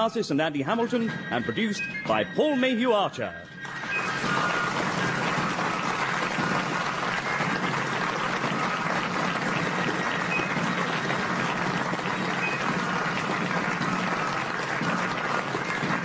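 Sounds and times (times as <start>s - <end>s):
audience applauding: 3.6s - 16.0s.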